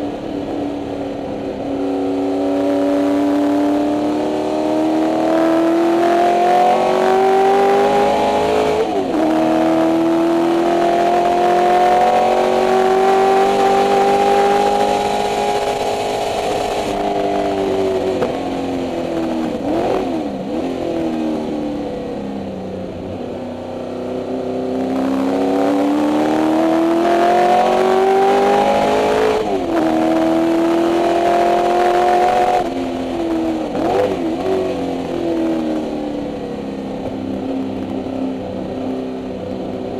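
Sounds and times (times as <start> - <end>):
race car engine revving: 1.4 - 22.2, 22.8 - 38.0.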